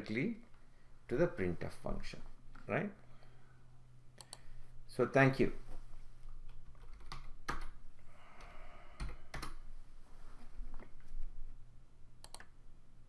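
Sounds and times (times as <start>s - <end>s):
keyboard keystrokes: 12.2s - 12.5s.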